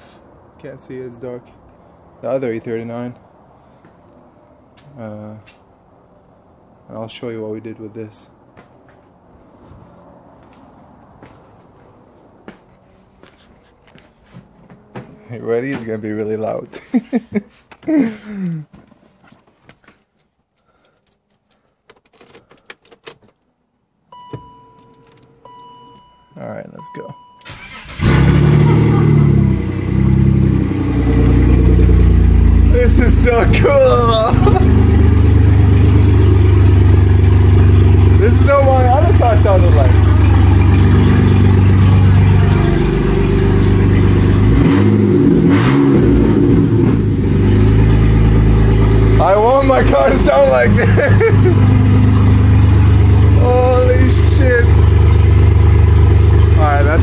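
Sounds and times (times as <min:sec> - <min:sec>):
car keys jingling: 0:19.1 - 0:23.5, 0:24.2 - 0:26.3
key clicking into ignition: 0:20.0 - 0:23.4
loud car engine idling and revving: 0:27.5 - 0:57.0.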